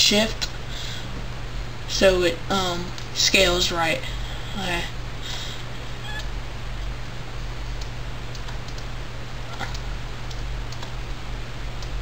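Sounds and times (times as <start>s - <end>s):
low hum and hiss: 0.0s - 12.0s
mouse and keyboard clicking: 7.8s - 8.9s, 9.5s - 11.2s.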